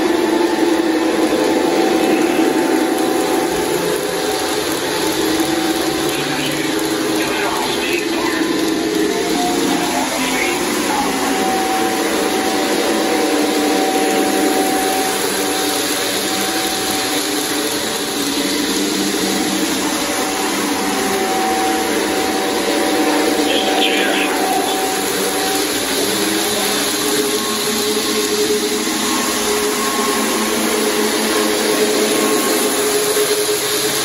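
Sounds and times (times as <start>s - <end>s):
model train diesel engine sound: 0.0s - 34.0s
model train motors and wheels: 0.0s - 34.0s.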